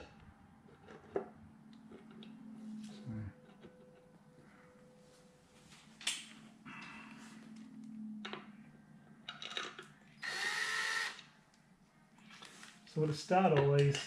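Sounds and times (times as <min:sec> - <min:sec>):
cordless drill whirring: 0:10.2 - 0:11.2.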